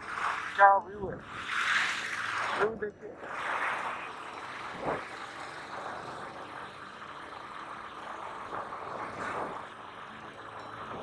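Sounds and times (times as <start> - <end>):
wind rushing over microphone: 4.6 - 5.2.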